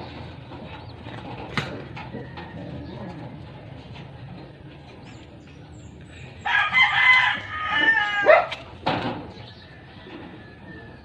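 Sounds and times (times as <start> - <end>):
rooster crowing: 6.4 - 8.5.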